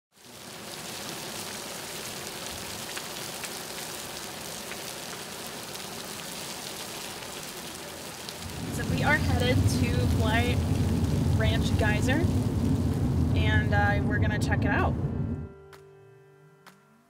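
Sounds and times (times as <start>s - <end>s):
hot water spray hissing: 0.1s - 13.6s.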